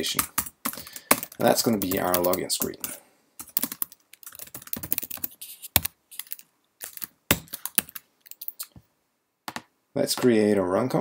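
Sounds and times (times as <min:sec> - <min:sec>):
typing on computer keyboard: 0:00.2 - 0:08.7.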